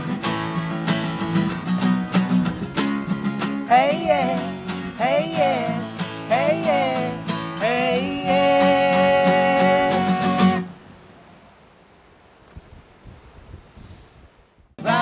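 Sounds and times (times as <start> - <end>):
acoustic guitars strumming: 0.0 - 10.9, 14.8 - 15.0
person singing: 3.6 - 10.7, 14.8 - 15.0.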